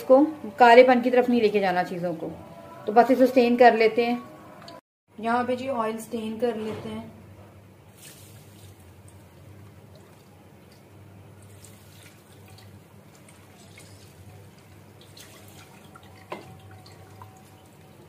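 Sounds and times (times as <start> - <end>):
oil trickling and dripping: 7.9 - 18.0.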